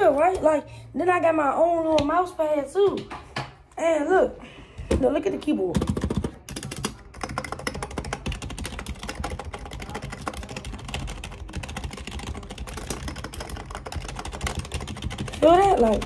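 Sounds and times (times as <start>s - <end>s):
keyboard typing: 5.7s - 16.0s.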